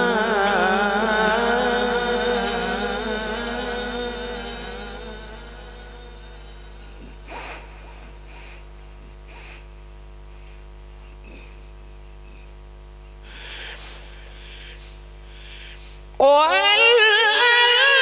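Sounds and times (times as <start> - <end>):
public address electrical hum: 0.0 - 18.0
short breathy hisses: 13.2 - 16.2.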